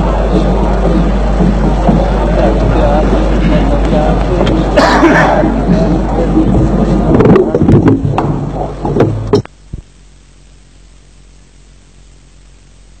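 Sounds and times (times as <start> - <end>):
muffled hall sound: 0.0 - 9.9
tape hiss: 0.0 - 13.0
sharp knocks and clicks: 7.2 - 9.5.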